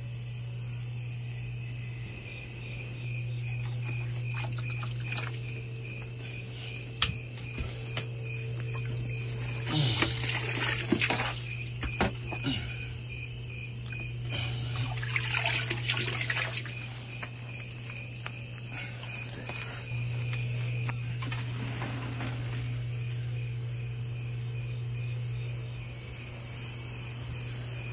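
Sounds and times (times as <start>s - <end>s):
crickets chirping: 0.0s - 27.9s.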